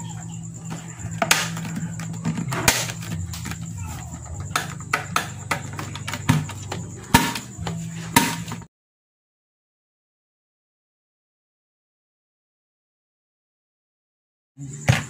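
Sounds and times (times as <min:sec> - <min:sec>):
steady low hum: 0:00.0 - 0:08.7.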